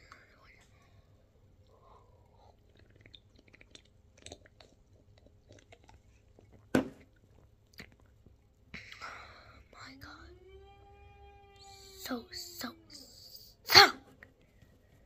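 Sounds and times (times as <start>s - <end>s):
person sipping and swallowing: 1.6s - 8.5s
lip smacks and clicks: 1.6s - 9.1s.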